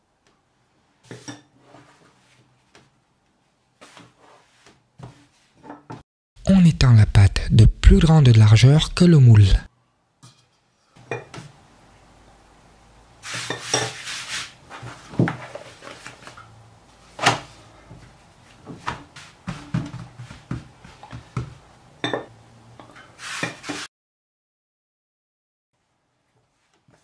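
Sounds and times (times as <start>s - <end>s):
brushing noise: 23.2s - 23.9s.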